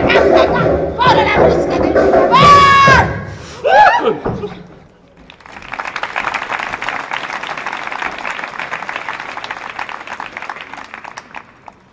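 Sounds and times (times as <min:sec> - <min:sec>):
audience applauding: 0:05.2 - 0:11.9.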